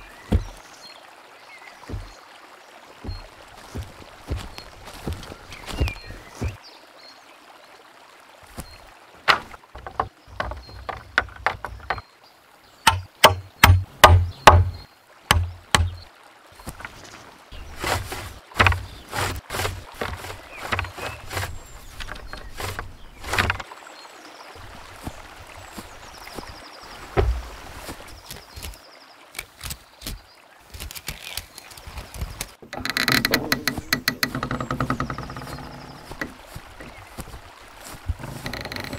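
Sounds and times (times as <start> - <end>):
wooden poles knocking: 0.0 - 0.6, 1.9 - 2.2, 3.0 - 6.6, 9.2 - 12.1, 12.8 - 17.0, 17.6 - 23.7, 25.8 - 28.7, 32.6 - 38.9.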